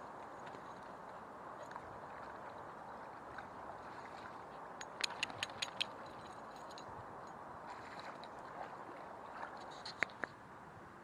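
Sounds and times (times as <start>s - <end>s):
stream trickling softly: 0.0s - 10.6s
faint high ticks: 4.8s - 6.1s.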